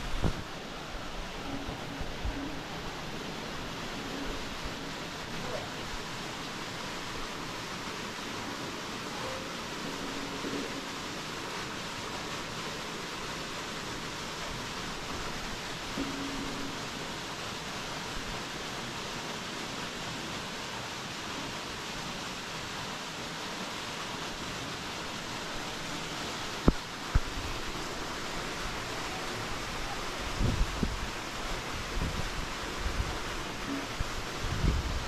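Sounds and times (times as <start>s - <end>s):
river water rushing: 0.0s - 35.0s.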